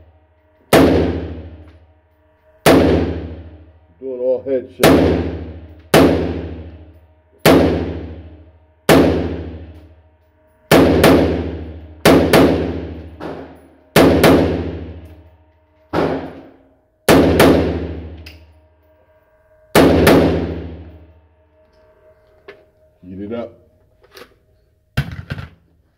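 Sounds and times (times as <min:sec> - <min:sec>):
rifle shots echoing indoors: 0:00.5 - 0:03.8, 0:04.7 - 0:21.9.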